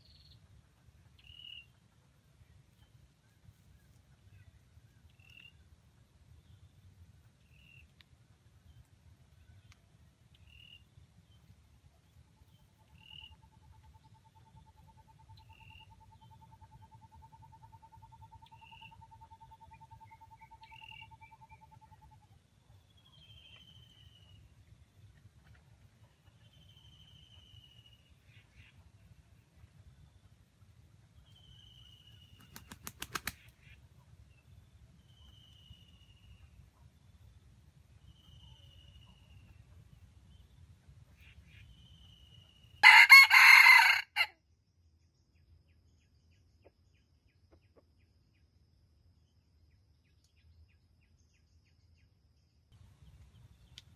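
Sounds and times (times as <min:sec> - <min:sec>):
bird chirping: 0:00.0 - 0:00.5, 0:01.1 - 0:01.8, 0:02.4 - 0:08.0, 0:08.6 - 0:30.4, 0:31.0 - 0:43.0
rooster wing claps: 0:32.5 - 0:33.5.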